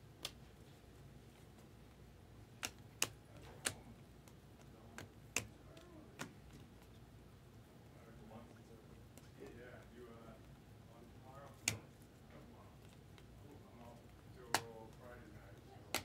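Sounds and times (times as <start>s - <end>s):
cards flicking clicks: 2.5s - 6.9s, 11.5s - 11.9s, 14.4s - 15.0s.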